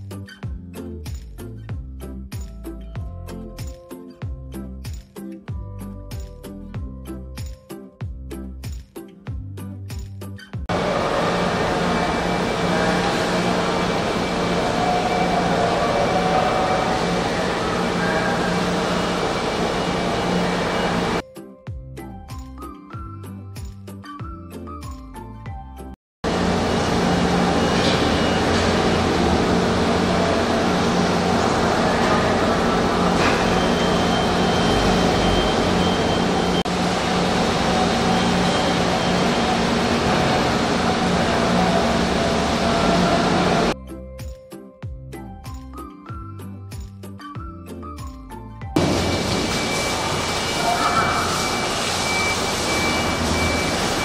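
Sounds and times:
engine drone: 10.7 - 21.2, 26.2 - 43.8, 48.8 - 54.0
machinery noise: 10.7 - 21.2, 26.2 - 43.8, 48.8 - 54.0.

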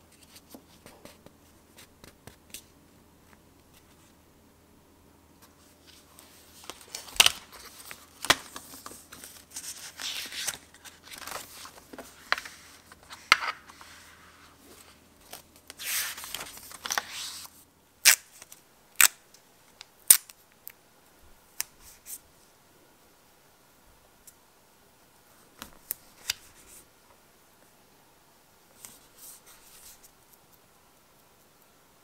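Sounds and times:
paper pages rustling and turning: 5.4 - 17.6.

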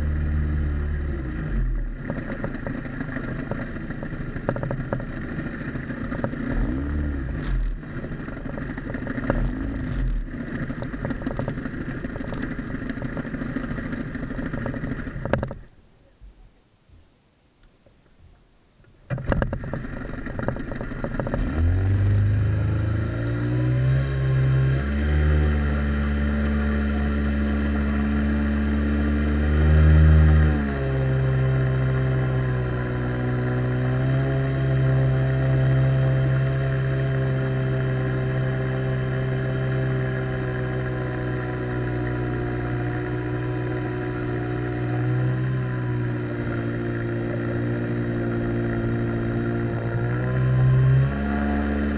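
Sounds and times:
outboard jet motor running: 0.0 - 15.8, 19.1 - 51.9
motor starting clatter: 19.1 - 22.4.

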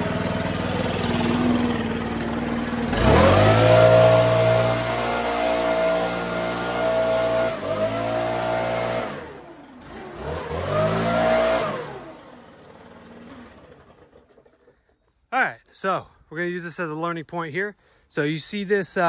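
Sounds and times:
engine running: 0.0 - 15.3.

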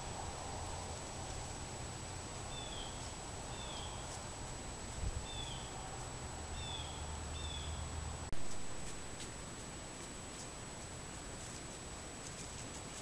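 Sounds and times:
bird chirping: 2.4 - 4.3, 5.2 - 8.0.

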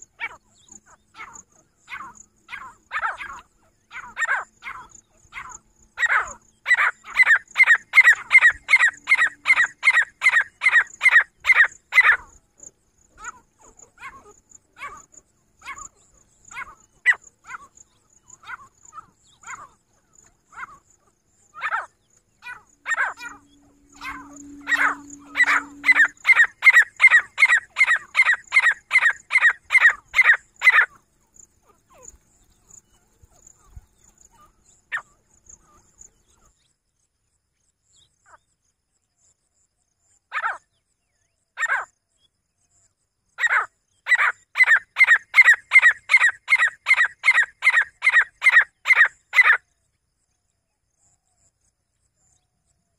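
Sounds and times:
francolin calling harsh notes: 22.5 - 28.0.

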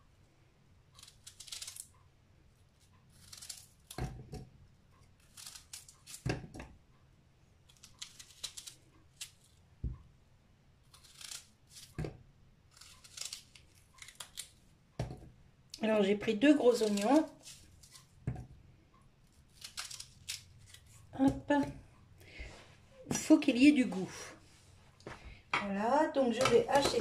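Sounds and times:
knife cutting onion: 10.9 - 15.2, 16.3 - 18.4, 19.4 - 21.8, 26.3 - 27.0.

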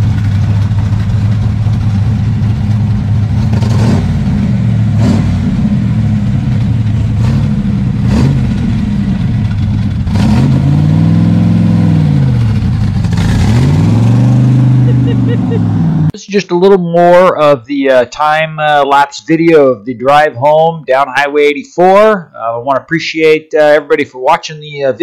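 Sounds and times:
car engine exhaust note: 0.0 - 16.2
engine revving: 0.0 - 16.2
exhaust cracks: 0.0 - 16.2.

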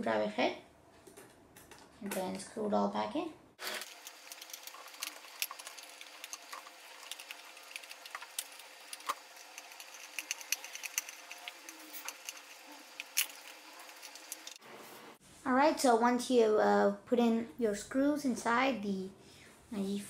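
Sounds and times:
screwdriver turning screws: 3.6 - 14.6
faint irregular clicks: 3.8 - 14.6.

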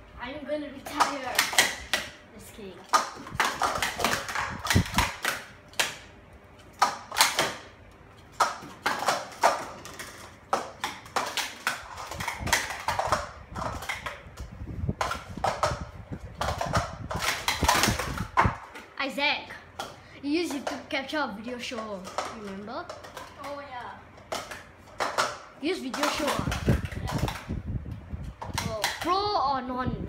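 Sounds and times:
plastic cups clacking: 0.8 - 2.2, 2.9 - 6.0, 8.3 - 18.9, 21.6 - 27.6, 28.2 - 29.2.

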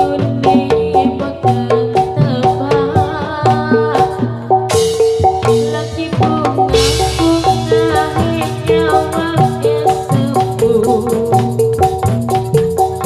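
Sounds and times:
drum strokes: 4.2 - 13.0
metal-keyed instruments melody: 4.4 - 13.0.

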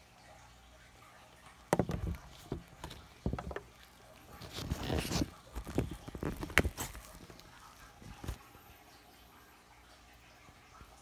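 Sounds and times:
camera handling knocks and rustling: 1.7 - 3.7.

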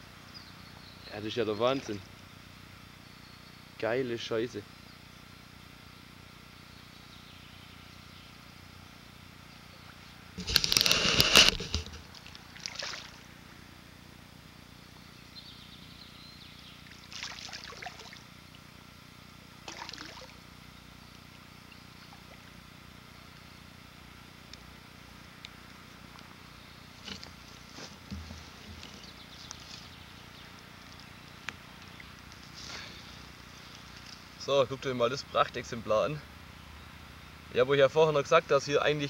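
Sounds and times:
fish splashing in water: 11.7 - 13.3, 17.0 - 18.2, 19.6 - 20.4.

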